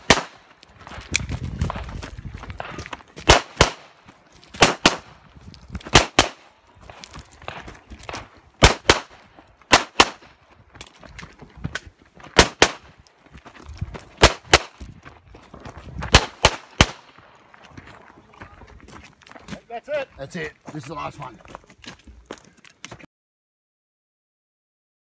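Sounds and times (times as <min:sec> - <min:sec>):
pistol shots in pairs: 0:00.0 - 0:00.5, 0:03.2 - 0:05.2, 0:05.9 - 0:06.5, 0:08.6 - 0:10.3, 0:12.4 - 0:12.9, 0:14.2 - 0:14.8, 0:16.1 - 0:17.2.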